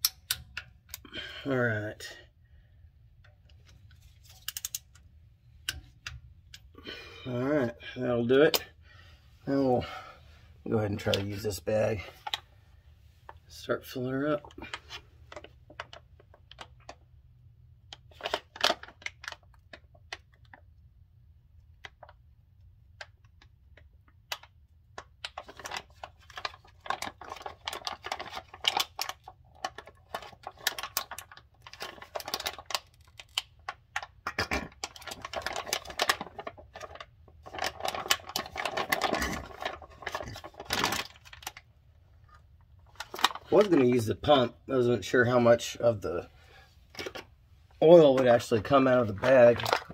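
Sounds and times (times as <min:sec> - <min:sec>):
plastic pouch crinkling: 0:25.3 - 0:41.6, 0:42.2 - 0:44.0, 0:48.2 - 0:49.9.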